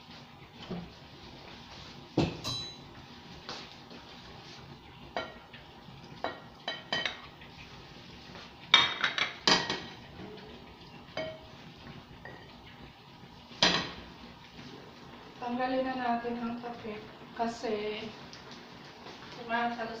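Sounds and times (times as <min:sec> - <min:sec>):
dishes and cutlery clinking: 0:02.2 - 0:02.9, 0:06.2 - 0:07.3, 0:08.7 - 0:10.0, 0:11.1 - 0:11.5.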